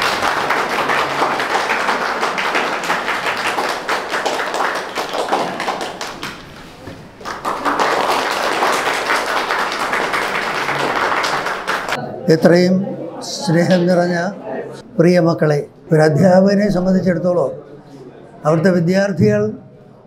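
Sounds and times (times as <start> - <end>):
people applauding: 0.0 - 12.0.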